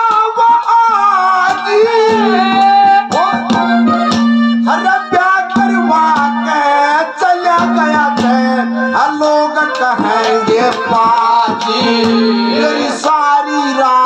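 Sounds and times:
man singing into a microphone: 0:00.0 - 0:14.0
drum strokes: 0:00.1 - 0:06.8, 0:07.5 - 0:13.2
held drone note: 0:10.0 - 0:13.0.

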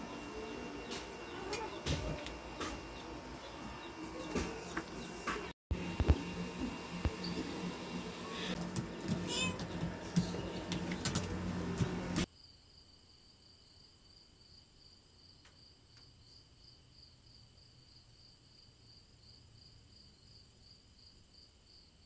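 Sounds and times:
crickets chirping: 0:12.3 - 0:22.0.

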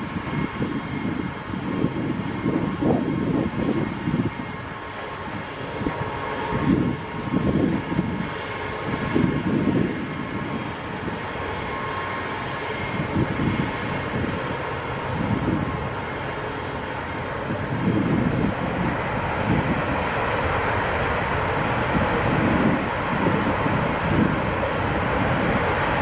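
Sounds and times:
jet engines roaring: 0:00.0 - 0:26.0.

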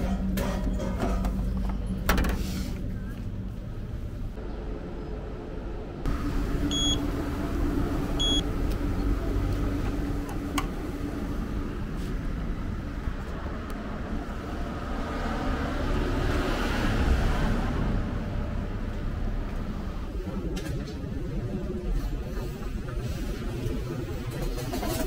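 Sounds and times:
low rumble: 0:03.0 - 0:15.9
machinery humming: 0:03.1 - 0:14.9
vending machine beeps: 0:06.7 - 0:07.1, 0:08.2 - 0:08.4.

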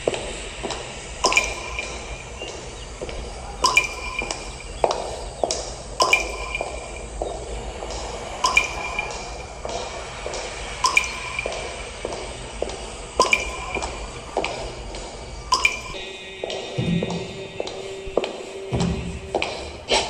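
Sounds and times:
sparse electronic music: 0:00.0 - 0:20.0
ringing drip-like clicks: 0:00.6 - 0:16.0.

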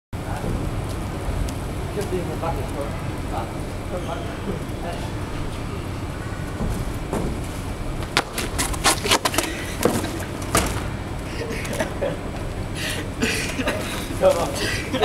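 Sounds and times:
steady low rumble: 0:00.2 - 0:15.0
person falling on asphalt: 0:07.3 - 0:10.9.

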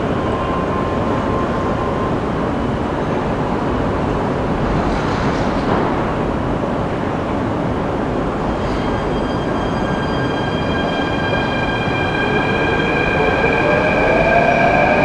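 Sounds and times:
metro train rumbling: 0:00.0 - 0:15.0.

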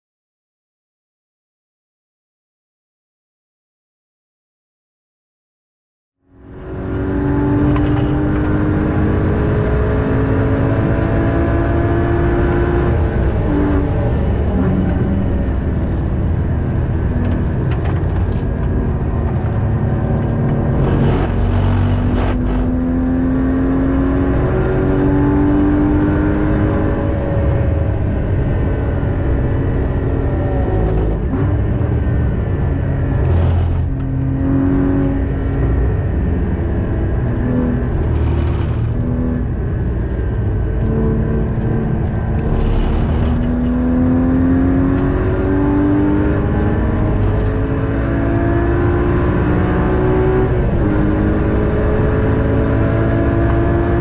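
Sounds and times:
car engine revving: 0:06.3 - 0:54.0
tyre and road noise: 0:12.4 - 0:52.0.

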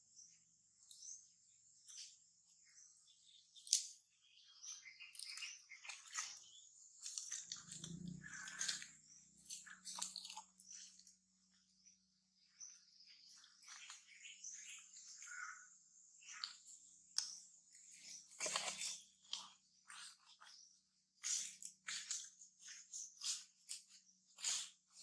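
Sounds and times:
crunching and crackling clicks: 0:05.0 - 0:11.2, 0:16.3 - 0:20.6.

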